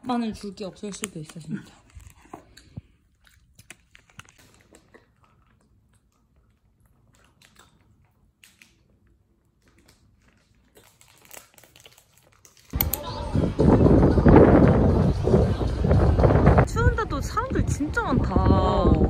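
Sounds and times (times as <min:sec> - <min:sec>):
chewing and crunching food: 0:00.6 - 0:12.8.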